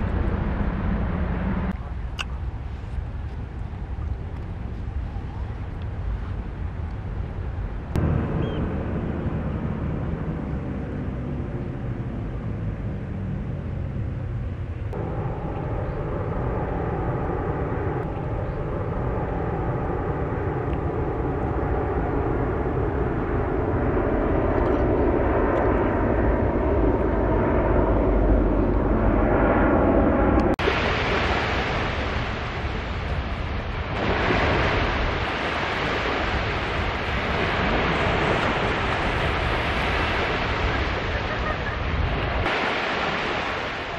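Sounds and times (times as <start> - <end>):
jet aircraft flying over: 0.0 - 43.9
wind on microphone: 0.0 - 43.9
waves washing onto a beach: 30.6 - 43.9.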